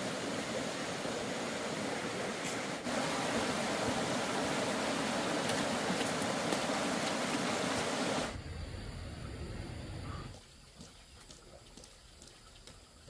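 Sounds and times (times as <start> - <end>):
water rushing: 0.0 - 10.0.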